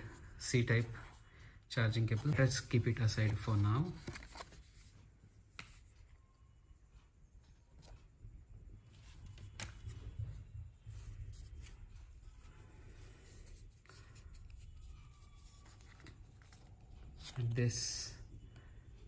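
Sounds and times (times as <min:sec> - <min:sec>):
cardboard and paper rustling: 0:02.1 - 0:04.9.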